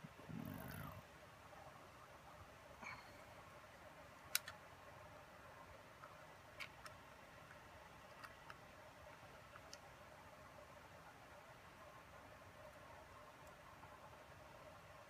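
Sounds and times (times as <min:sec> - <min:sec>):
small plastic parts clicking: 0:04.2 - 0:04.6, 0:06.0 - 0:09.9.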